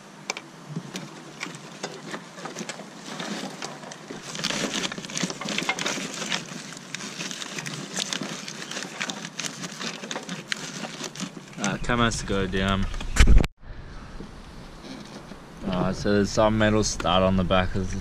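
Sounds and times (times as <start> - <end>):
wiring loom rustling and clicking: 0.3 - 11.9.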